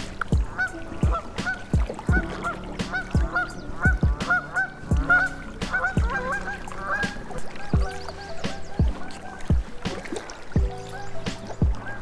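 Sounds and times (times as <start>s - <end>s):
held bass line: 0.0s - 7.0s
honk-like synth melody: 0.0s - 12.0s
deep booming kick drums: 0.3s - 6.2s, 7.8s - 8.0s, 10.6s - 10.8s.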